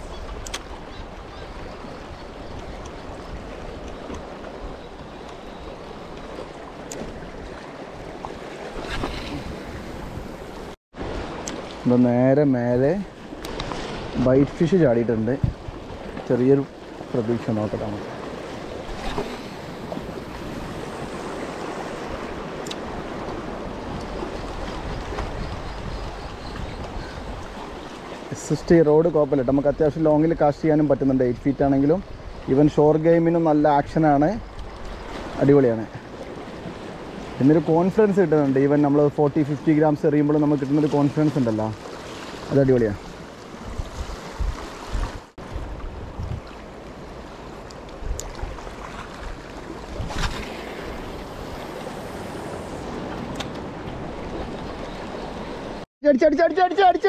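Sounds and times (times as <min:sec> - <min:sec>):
wind buffeting microphone: 0:08.7 - 0:11.3, 0:13.3 - 0:16.2, 0:17.8 - 0:27.9, 0:42.8 - 0:46.7, 0:47.8 - 0:55.8
sea water washing against rocks: 0:47.3 - 0:55.8.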